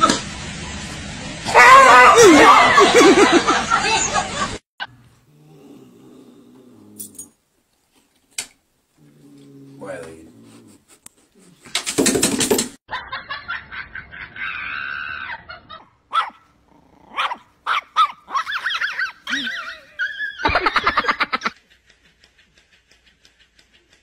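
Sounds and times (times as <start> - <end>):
cat yowling: 1.5 - 2.7
small dog barking: 16.1 - 16.5, 17.1 - 19.6.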